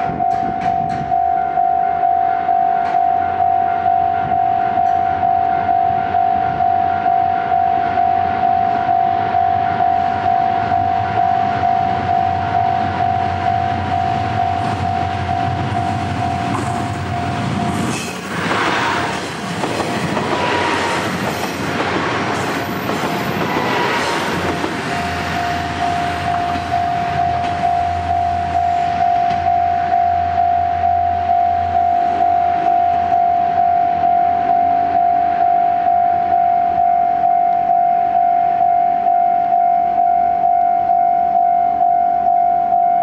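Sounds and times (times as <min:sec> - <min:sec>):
train wheel clatter: 0:00.0 - 0:01.2, 0:14.0 - 0:29.6
level crossing warning bell: 0:00.0 - 0:17.8, 0:22.4 - 0:43.0
diesel train engine: 0:00.0 - 0:40.4.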